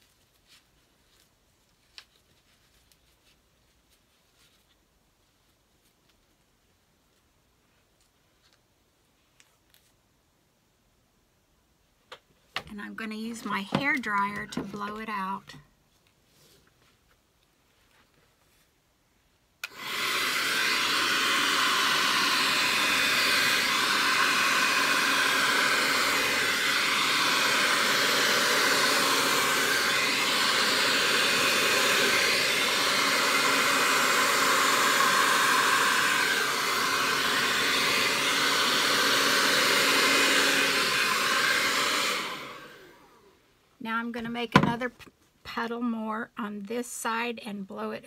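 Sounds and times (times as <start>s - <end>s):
hair dryer running: 19.6s - 43.4s.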